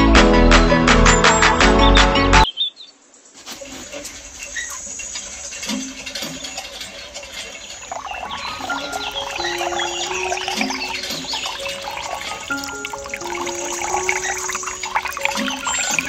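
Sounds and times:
water pattering into plastic tub: 0:03.4 - 0:16.0
faint chirps: 0:03.9 - 0:16.0.

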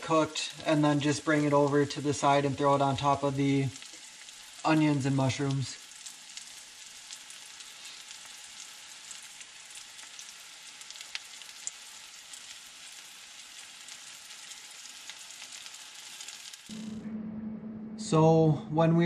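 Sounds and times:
liver frying in butter: 0:00.0 - 0:16.7
sharp frying pops: 0:03.5 - 0:16.7.

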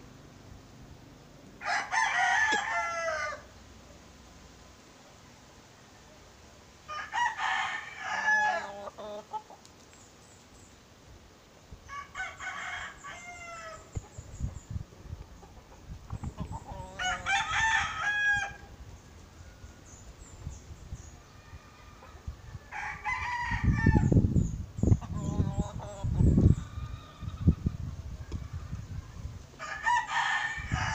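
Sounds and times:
roosters crowing: 0:01.6 - 0:03.6, 0:06.8 - 0:09.5, 0:11.8 - 0:14.2, 0:15.4 - 0:20.2, 0:21.1 - 0:24.2, 0:25.1 - 0:30.9.

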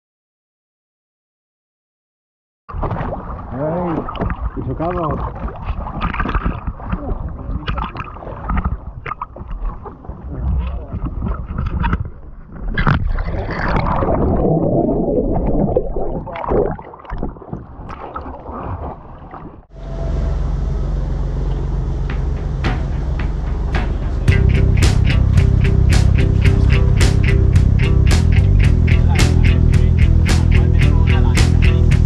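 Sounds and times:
water sloshing around boat: 0:02.7 - 0:14.3, 0:16.3 - 0:24.3
wind on microphone: 0:04.0 - 0:18.0
steady low hum: 0:19.7 - 0:32.0
knocks: 0:22.1 - 0:24.4.

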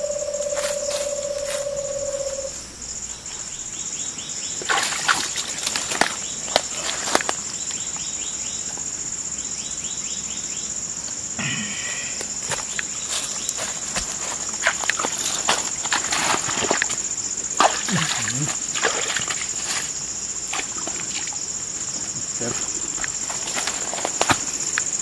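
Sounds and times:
high insect drone: 0:00.0 - 0:25.0
hand splashing in muddy water: 0:17.6 - 0:19.9.

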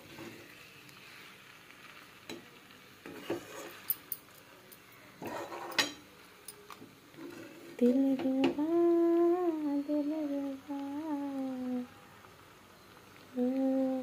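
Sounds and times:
faint sizzle: 0:00.0 - 0:14.0
metal spatula scraping a pan: 0:03.0 - 0:04.0, 0:05.2 - 0:06.0.

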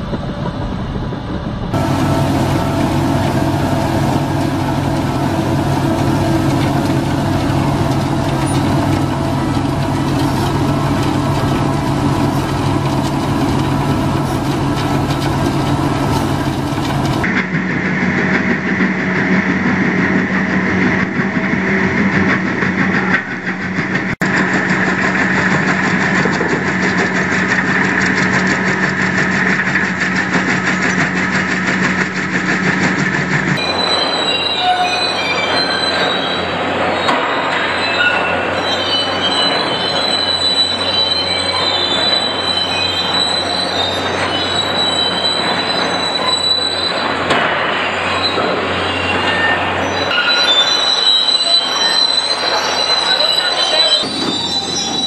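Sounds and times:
low hum: 0:00.0 - 0:17.6
heavy vehicle engine running: 0:00.0 - 0:34.4
high continuous squeal: 0:01.7 - 0:17.3, 0:33.3 - 0:55.0.

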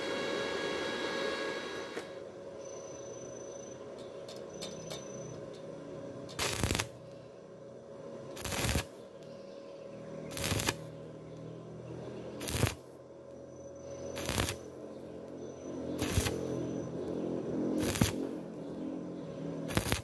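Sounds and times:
welding arc crackling: 0:06.3 - 0:07.0, 0:08.3 - 0:09.0, 0:10.3 - 0:11.0, 0:12.4 - 0:12.9, 0:14.2 - 0:14.8, 0:16.0 - 0:17.1, 0:17.8 - 0:18.6, 0:19.7 - 0:20.0.

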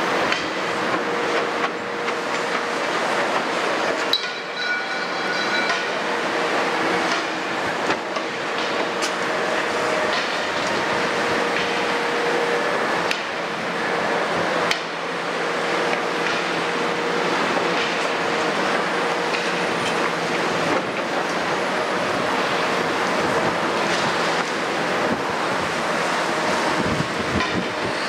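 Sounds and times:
excavator diesel engine running: 0:00.0 - 0:28.0
steady whine: 0:02.3 - 0:17.6.

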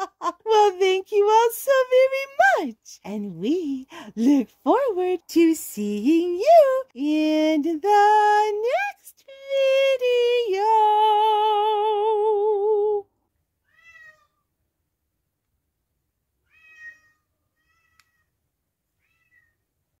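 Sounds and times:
cat meowing: 0:13.6 - 0:14.4, 0:16.4 - 0:18.3, 0:19.0 - 0:19.6.

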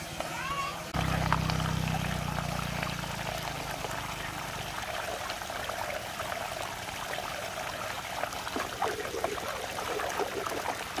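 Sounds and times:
water swirling in whirlpool: 0:00.0 - 0:11.0.

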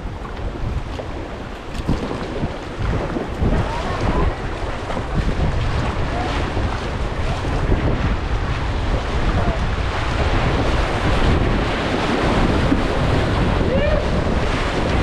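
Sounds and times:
creek water rushing: 0:00.0 - 0:15.0
paddle strokes splashing: 0:00.0 - 0:15.0
wind rumbling on microphone: 0:00.0 - 0:15.0.

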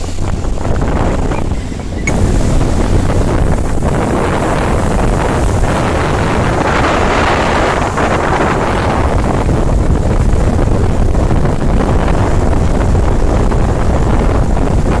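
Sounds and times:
motorboat engine: 0:00.0 - 0:15.0
water rushing past hull: 0:00.0 - 0:15.0
wind buffeting microphone: 0:00.0 - 0:15.0.

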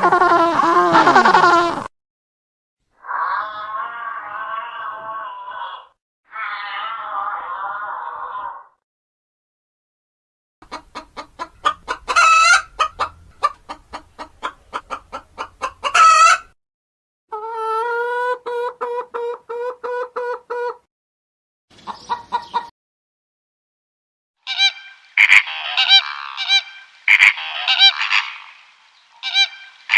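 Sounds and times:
chicken squawks: 0:00.0 - 0:01.9, 0:03.0 - 0:08.7, 0:10.6 - 0:16.6, 0:17.3 - 0:20.9, 0:21.8 - 0:22.7, 0:24.4 - 0:28.6, 0:29.2 - 0:29.9
chickens clucking: 0:00.0 - 0:01.9, 0:10.6 - 0:16.6, 0:17.3 - 0:20.9, 0:21.7 - 0:22.7, 0:24.5 - 0:28.6
evenly pulsed chicken call: 0:11.4 - 0:13.1, 0:15.6 - 0:16.6, 0:17.3 - 0:20.8, 0:24.5 - 0:28.6, 0:29.2 - 0:29.9.

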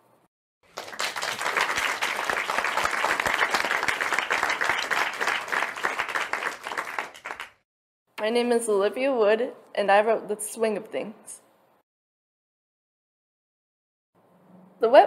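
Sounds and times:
crowd applauding: 0:00.7 - 0:07.6.

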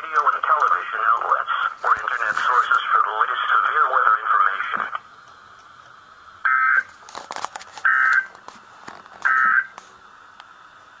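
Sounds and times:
radio hiss: 0:00.0 - 0:07.1, 0:07.8 - 0:11.0
crackling static clicks: 0:00.0 - 0:10.6
warbling digital data tones: 0:06.5 - 0:06.9.

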